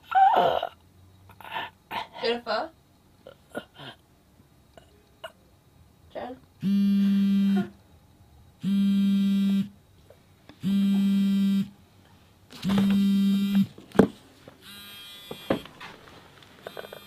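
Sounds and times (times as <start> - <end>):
phone vibrating buzz: 6.6 - 7.8, 8.6 - 9.8, 10.6 - 11.8, 12.6 - 13.8, 14.6 - 15.9, 16.6 - 17.0.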